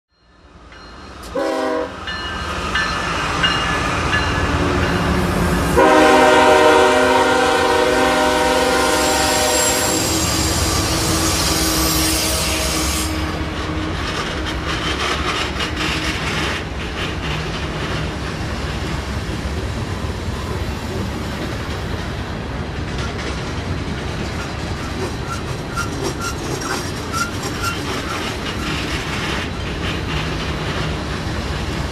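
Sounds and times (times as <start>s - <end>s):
low train rumble: 0.1s - 31.9s
locomotive horn blasts: 1.3s - 2.0s, 5.8s - 13.6s
freight car wheels clacking: 21.4s - 31.2s.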